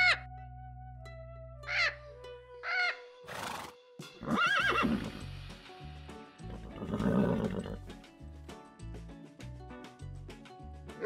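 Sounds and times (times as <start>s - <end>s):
cockatoo call: 0.0s - 0.3s, 1.6s - 2.0s, 2.6s - 5.2s
background music: 0.0s - 11.0s
horse neighing: 2.6s - 5.2s, 6.5s - 7.9s.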